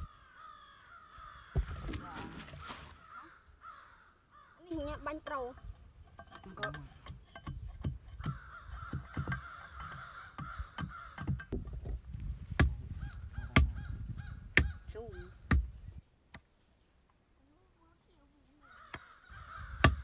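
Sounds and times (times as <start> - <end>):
birds calling: 0.0 - 11.6, 12.9 - 16.0, 18.6 - 20.0
machete chopping wood: 12.5 - 12.8, 15.5 - 15.8, 19.8 - 20.0.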